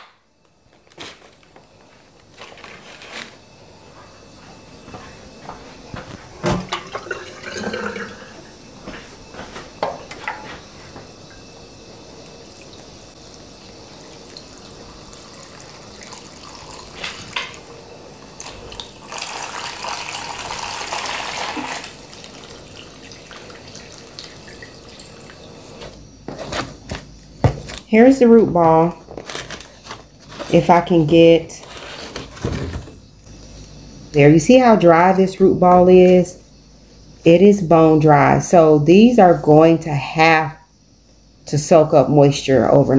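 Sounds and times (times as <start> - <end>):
tap running into watering can: 6.4 - 8.4, 12.5 - 17.6, 18.4 - 25.4.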